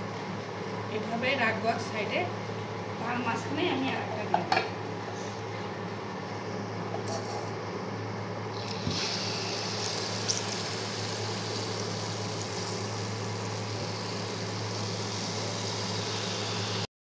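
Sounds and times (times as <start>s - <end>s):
batter sizzling in hot oil: 8.5s - 16.9s.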